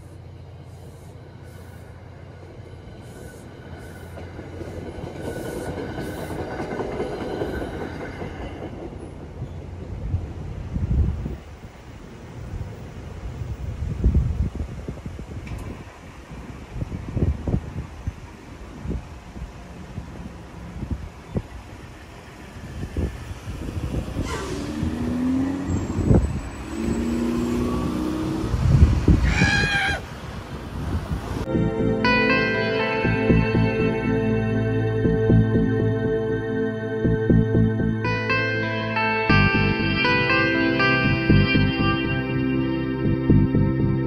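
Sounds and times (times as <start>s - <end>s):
train coaches rolling past: 0.0s - 37.3s
wheels clacking over rail joints: 2.5s - 10.7s
cars driving: 19.6s - 44.0s.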